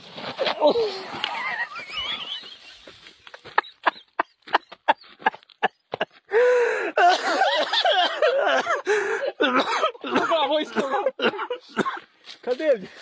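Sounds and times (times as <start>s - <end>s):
person panting: 6.0s - 7.4s, 8.3s - 9.5s.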